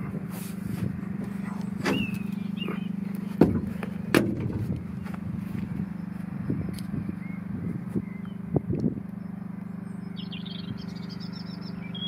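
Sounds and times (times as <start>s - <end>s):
engine idling: 0.0s - 12.0s
sharp knocks: 3.4s - 4.7s.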